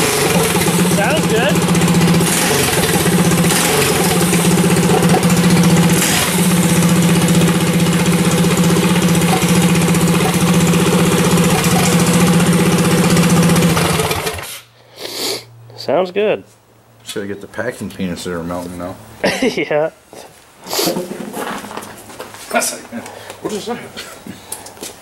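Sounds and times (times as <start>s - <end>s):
small engine idling: 0.0s - 14.5s.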